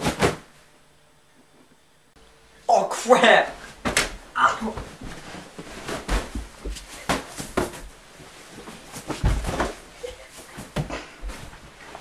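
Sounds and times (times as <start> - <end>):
soft thumps on a mattress: 8.6 - 9.8.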